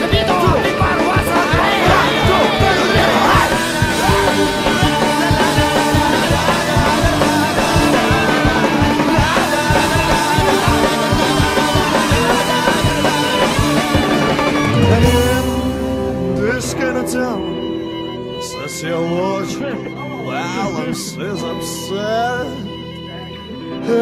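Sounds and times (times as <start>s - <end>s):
driving drum beat: 0.0s - 16.8s
fast rock music: 0.0s - 18.6s.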